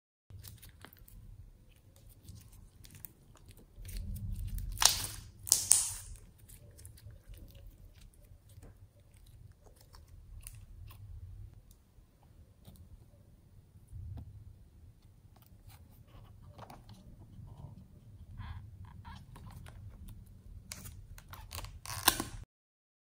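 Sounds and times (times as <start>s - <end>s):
crackling squelches: 0.3s - 22.4s
slime sticky clicks and pops: 4.7s - 6.2s.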